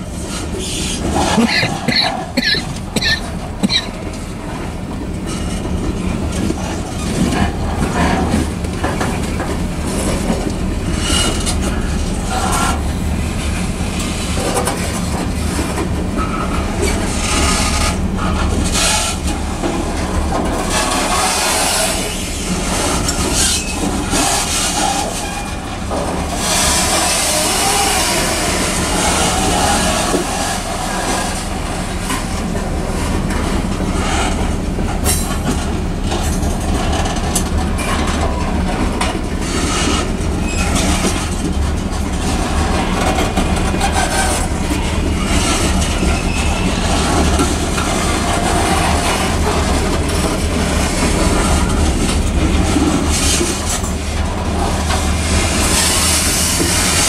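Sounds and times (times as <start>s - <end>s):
freight train rumble: 0.0s - 57.0s
wheels clicking over rail joints: 0.0s - 57.0s.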